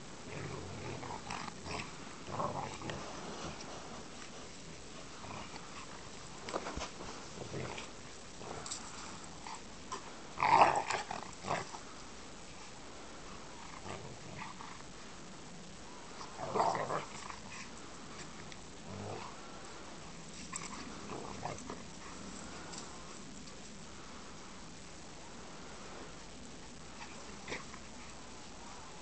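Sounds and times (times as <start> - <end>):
dogs growling: 0.2 - 12.0, 13.4 - 14.9, 16.1 - 23.2, 26.9 - 29.0.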